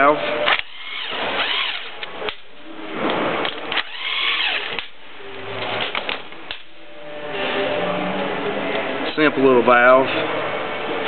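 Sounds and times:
power drill spinning: 0:00.2 - 0:02.0, 0:03.7 - 0:04.9.

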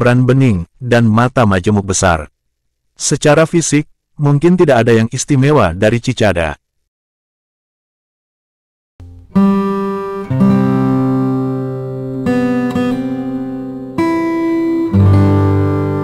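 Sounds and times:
strummed acoustic guitar: 0:09.0 - 0:16.0.

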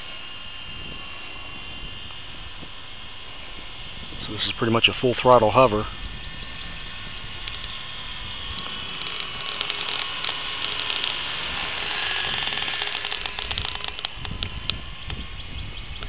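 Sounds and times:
rc helicopter motor whirring: 0:00.0 - 0:16.0
fast mechanical clicking: 0:05.2 - 0:16.0.

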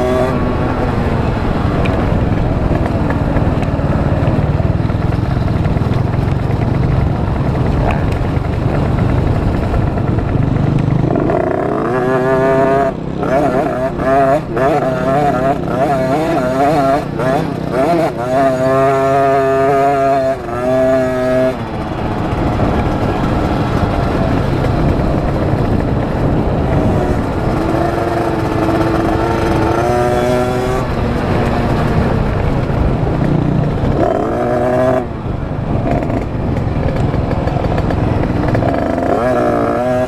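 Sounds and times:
dirt bike engine revving: 0:00.0 - 0:40.0
wind noise on microphone: 0:00.0 - 0:40.0.

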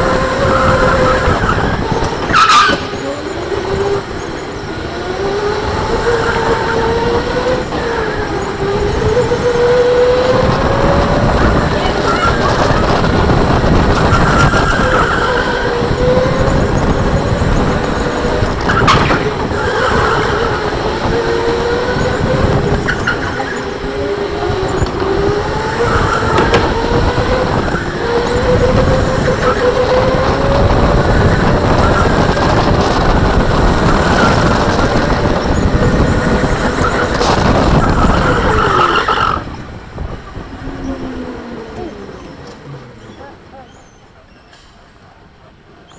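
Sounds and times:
electric motor whine: 0:00.0 - 0:43.0
steady rushing noise: 0:00.0 - 0:45.8
tyre squeal: 0:00.3 - 0:04.7.

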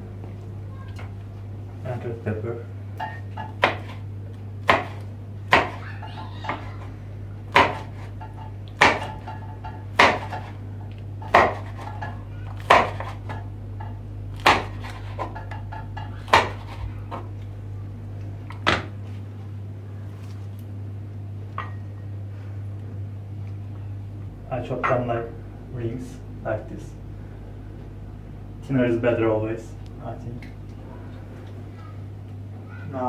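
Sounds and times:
steady low hum: 0:00.0 - 0:33.0
knife chopping on wooden board: 0:03.4 - 0:04.0, 0:04.6 - 0:05.8, 0:07.5 - 0:08.1, 0:08.8 - 0:10.6, 0:11.2 - 0:12.0, 0:12.6 - 0:13.4, 0:14.4 - 0:17.2.

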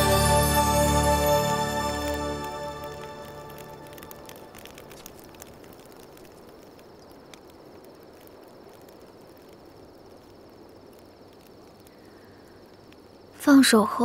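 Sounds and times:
low hiss: 0:00.0 - 0:14.0
crickets chirring: 0:00.1 - 0:14.0
faint clicks: 0:03.5 - 0:13.3.

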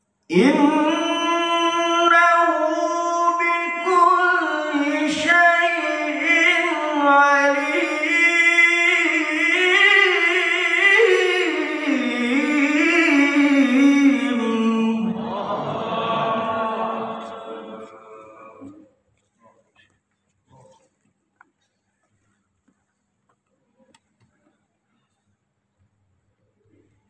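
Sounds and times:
man reciting melodically: 0:00.2 - 0:19.0.

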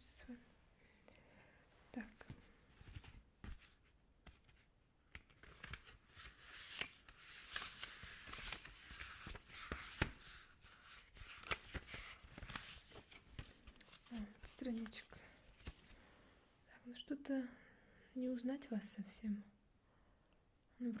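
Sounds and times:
paper pages rustling: 0:02.2 - 0:16.0.

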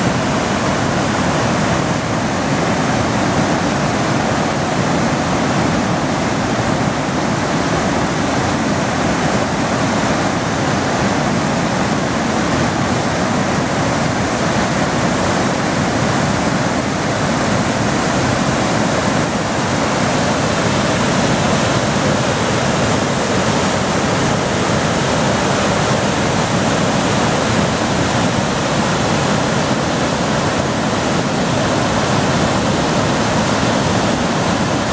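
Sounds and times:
waterfall rushing: 0:00.0 - 0:34.9.

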